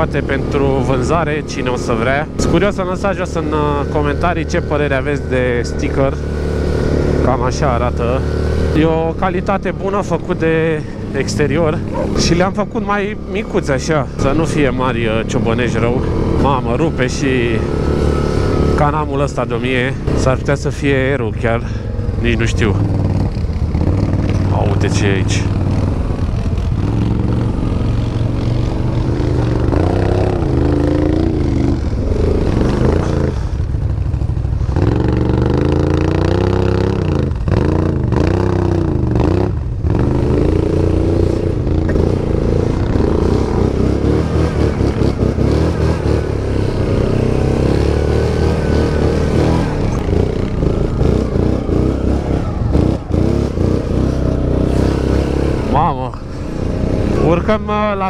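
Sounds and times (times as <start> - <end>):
atv engines revving: 0.0 - 58.0.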